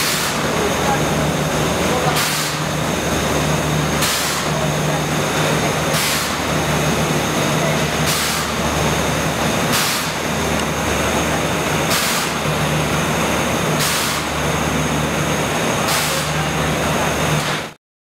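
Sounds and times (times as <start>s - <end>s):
machinery humming: 0.0s - 17.8s.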